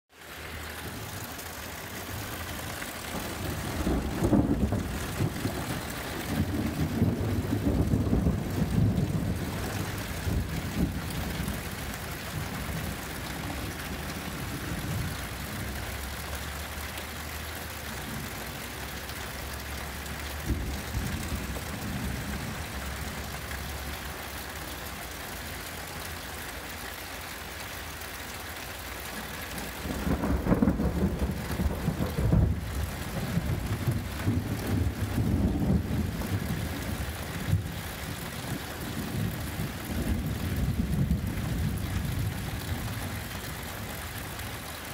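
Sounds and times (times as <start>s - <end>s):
steady rain: 0.1s - 44.9s
thunder rumbling: 0.8s - 16.0s, 20.2s - 23.5s, 29.6s - 44.4s.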